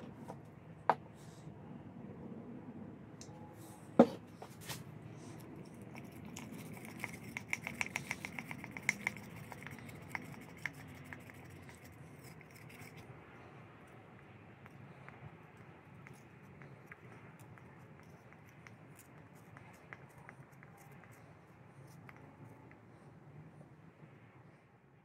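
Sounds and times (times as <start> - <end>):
stick scraping glass jar: 5.6 - 13.0.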